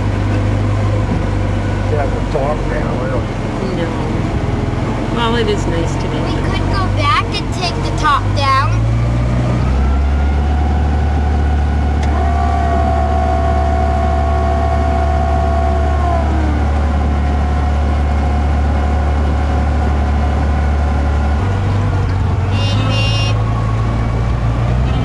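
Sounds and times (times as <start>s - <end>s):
car engine low drone: 0.0s - 25.0s
high steady whine: 9.7s - 25.0s.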